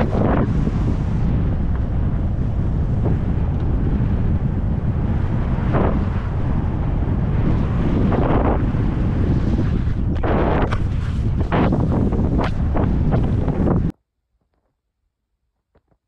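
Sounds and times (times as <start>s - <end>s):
wind buffeting microphone: 0.0s - 13.9s
skis scraping on packed snow: 7.6s - 13.9s.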